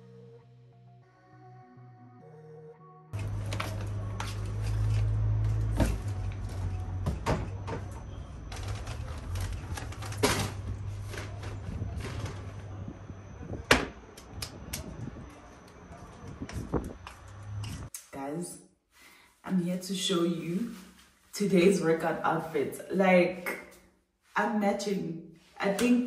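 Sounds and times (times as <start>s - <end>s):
steady low hum: 3.2s - 17.9s.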